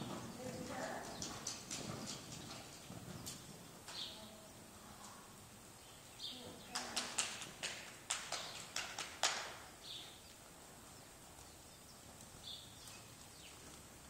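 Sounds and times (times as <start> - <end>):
horse hoofbeats: 0.0 - 4.2, 6.5 - 10.1.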